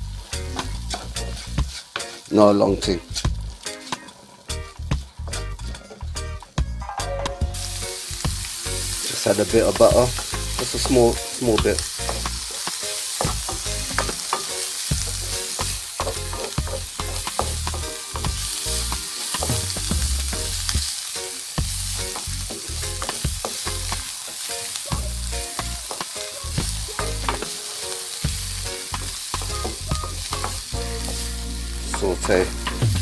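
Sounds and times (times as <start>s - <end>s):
vegetables sizzling in a wok: 0.0s - 33.0s
wooden spatula scraping a pan: 0.4s - 4.3s.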